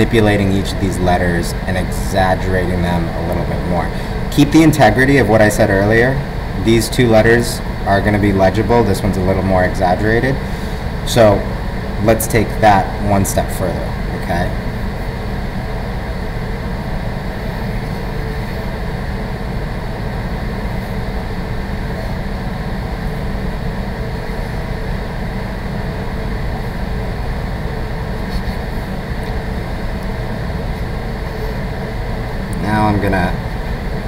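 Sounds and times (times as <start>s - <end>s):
room noise hum and hiss: 0.0s - 34.0s
marker scratching on paper: 28.2s - 28.8s.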